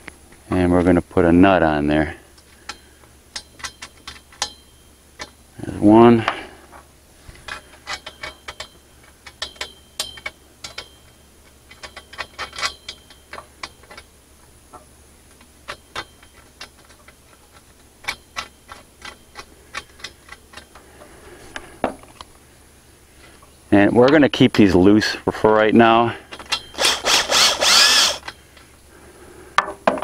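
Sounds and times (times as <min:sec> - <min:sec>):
small metal clicks and ticks: 0:02.4 - 0:04.6, 0:07.5 - 0:14.1, 0:15.3 - 0:20.8.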